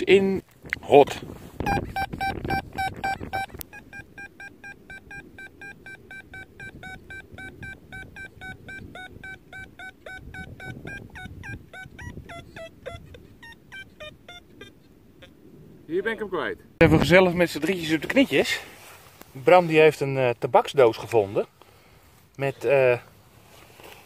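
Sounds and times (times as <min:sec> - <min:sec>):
metal detector short beeps: 0:01.6 - 0:14.7.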